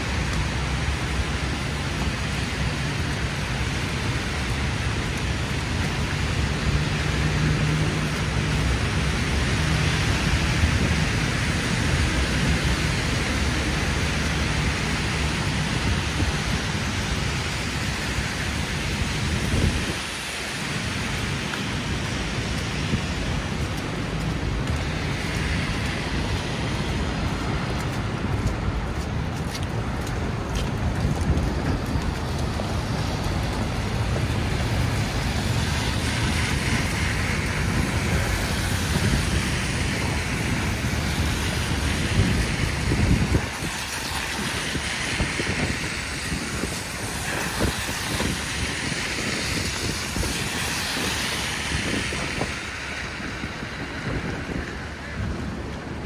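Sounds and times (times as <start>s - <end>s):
continuous wet hiss: 0.0s - 56.0s
low traffic rumble: 0.0s - 56.0s.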